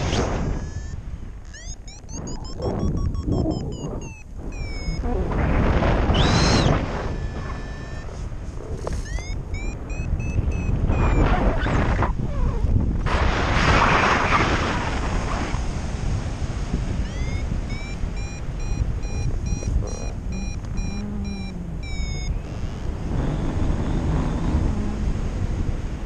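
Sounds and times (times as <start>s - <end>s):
wind on microphone: 0.0s - 26.0s
variometer beeping: 0.5s - 5.3s, 6.0s - 8.2s, 8.9s - 11.4s, 17.0s - 23.2s.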